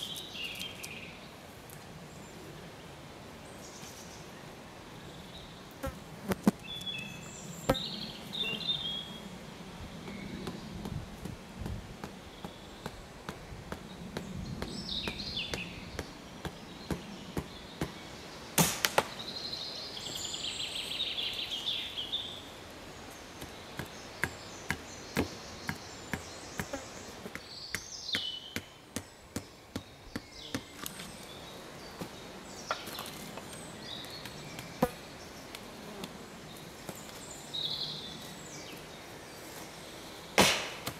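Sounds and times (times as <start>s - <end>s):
birds chirping: 0.0s - 40.9s
axe chopping wood: 18.6s - 19.2s, 40.4s - 40.9s.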